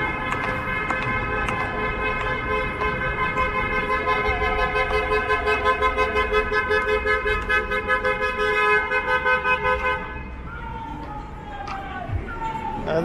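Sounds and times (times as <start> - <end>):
car horn honking pulses: 0.0 - 10.5
city traffic rumble: 0.0 - 13.0.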